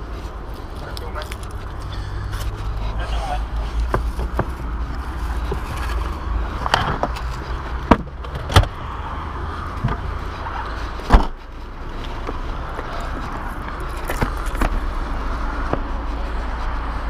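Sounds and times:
steady low rumble: 0:00.0 - 0:17.0
car boot knocks and thumps: 0:03.8 - 0:04.7, 0:07.8 - 0:08.8, 0:09.8 - 0:10.1, 0:11.0 - 0:11.4.

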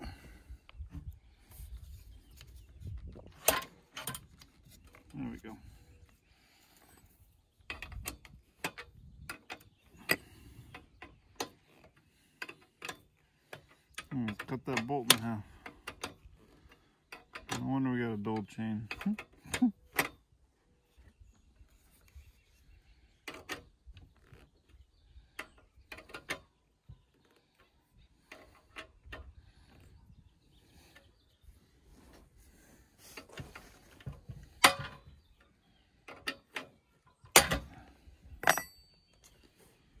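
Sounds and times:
metallic ring: 0:38.4 - 0:39.2.

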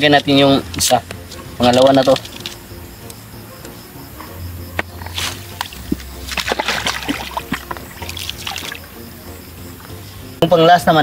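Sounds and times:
water sloshing and splashing: 0:05.0 - 0:08.9.

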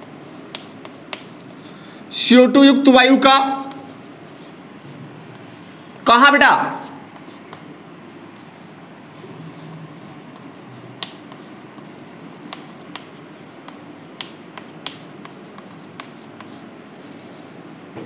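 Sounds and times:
chalk scratching on chalkboard: 0:00.0 - 0:01.8, 0:03.5 - 0:04.7, 0:06.8 - 0:07.7, 0:10.0 - 0:17.6
chalk tapping on board: 0:00.5 - 0:01.4, 0:10.4 - 0:16.6.

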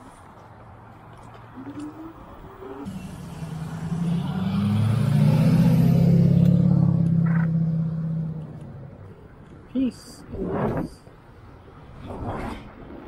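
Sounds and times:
vehicle engine passing by: 0:02.0 - 0:09.0.

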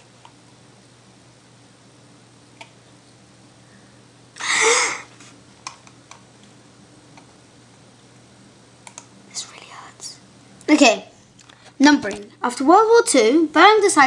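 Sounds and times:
low steady hum: 0:00.0 - 0:14.0
boy's breathy vocal burst: 0:04.4 - 0:05.1.

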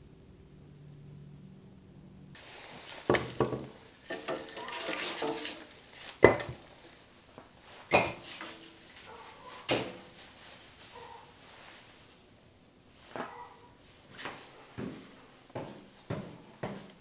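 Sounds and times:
wood scraping over hearth: 0:02.4 - 0:12.0
firewood knocking and clattering: 0:02.9 - 0:07.0.

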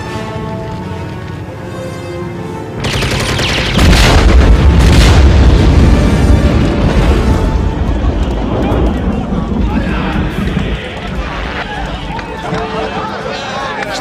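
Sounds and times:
orchestral film music: 0:00.0 - 0:14.0
machine-gun fire: 0:02.8 - 0:07.4
loud explosion with deep rumble: 0:03.6 - 0:11.2.

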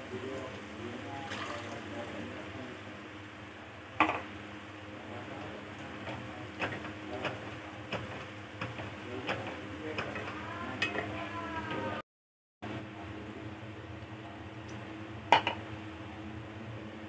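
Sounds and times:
spoon knocking against pan: 0:06.0 - 0:11.8.

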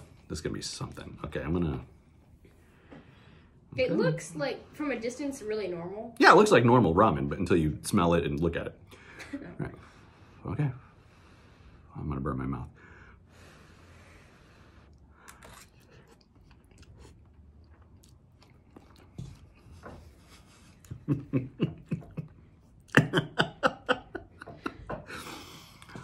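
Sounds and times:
chewing with wet clicks: 0:14.9 - 0:20.0.

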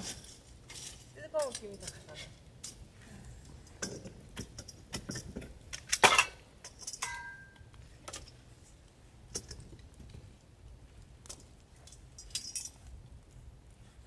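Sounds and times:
metal tongs clinking on metal: 0:03.8 - 0:08.4.

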